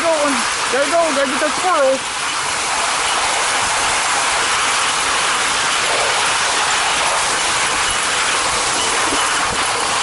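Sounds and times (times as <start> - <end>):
sled runners scraping on snow: 0.7 - 10.0.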